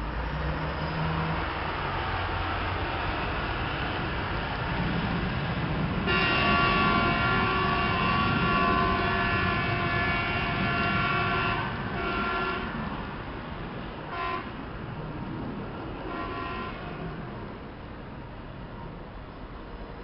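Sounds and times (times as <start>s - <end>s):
multi-tone vehicle horn: 6.0s - 12.8s, 14.1s - 14.6s, 16.1s - 17.2s.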